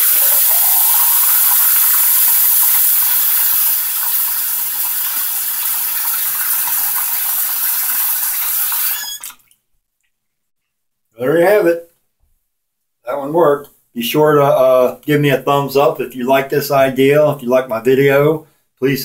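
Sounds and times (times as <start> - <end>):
faucet running water: 0.0 - 9.6
faucet squeak: 3.9 - 9.5.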